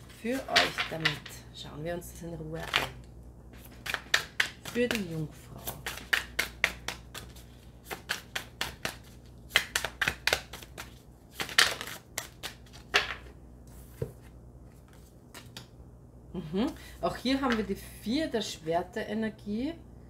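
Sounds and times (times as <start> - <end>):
cards shuffling: 0.0 - 1.3, 2.6 - 15.7.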